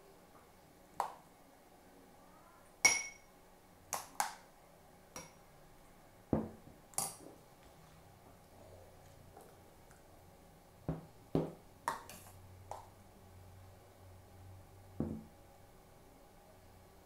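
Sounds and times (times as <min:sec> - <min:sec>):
dull knock: 0:15.0 - 0:15.3.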